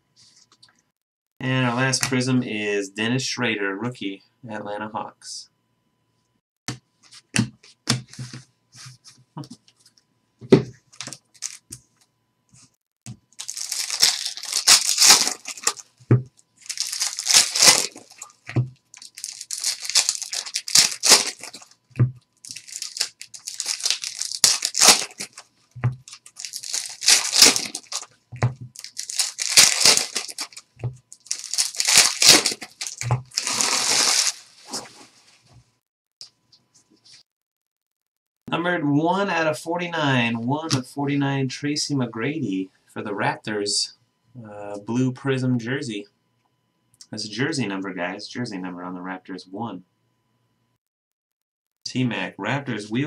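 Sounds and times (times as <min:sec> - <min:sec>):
foil wrappers crinkling and tearing: 0:11.0 - 0:11.6, 0:13.4 - 0:15.9, 0:16.6 - 0:21.8, 0:22.4 - 0:35.2.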